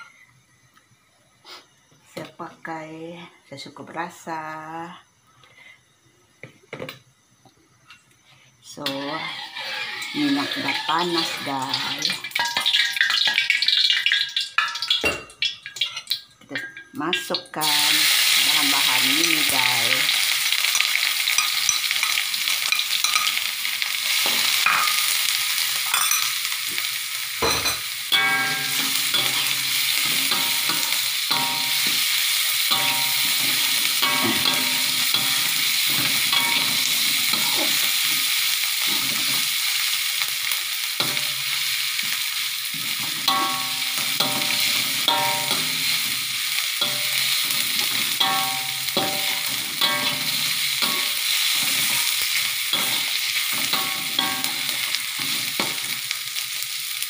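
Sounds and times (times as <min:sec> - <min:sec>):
spice paste sizzling in hot oil: 0:07.2 - 0:57.0
metal ladle scraping a wok: 0:08.8 - 0:12.0, 0:28.1 - 0:39.6, 0:42.8 - 0:55.8.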